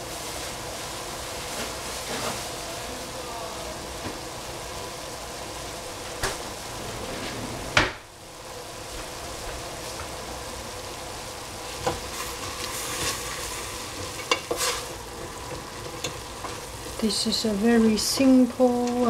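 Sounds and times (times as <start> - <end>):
vegetables sizzling in a pot: 0.0 - 7.0, 7.9 - 19.0
wooden spoon stirring vegetables: 11.7 - 19.0.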